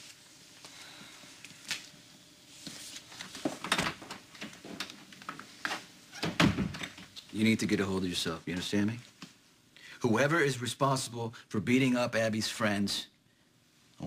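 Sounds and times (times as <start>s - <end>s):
wooden door knocks and clicks: 6.2s - 7.0s.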